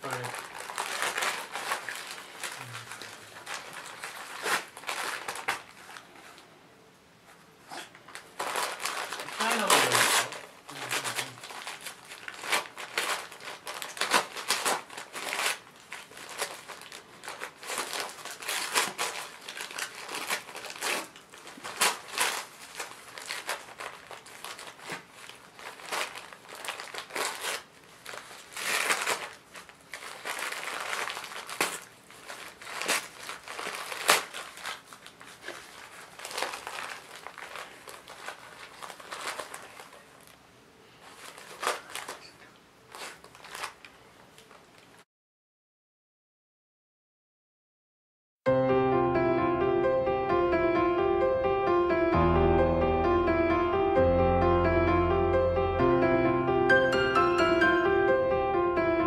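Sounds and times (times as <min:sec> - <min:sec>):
wrapping paper crinkling and tearing: 0:00.0 - 0:06.6, 0:07.6 - 0:45.0.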